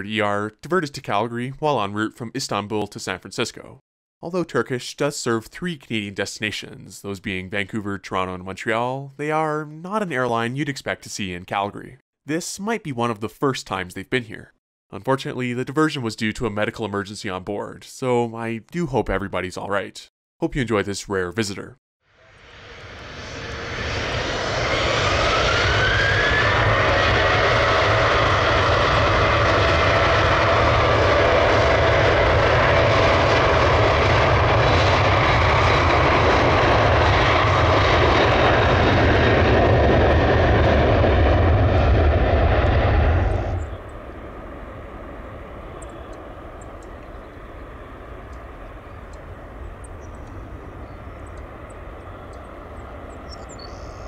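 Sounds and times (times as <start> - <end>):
jet engines running with whine: 22.1 - 54.0.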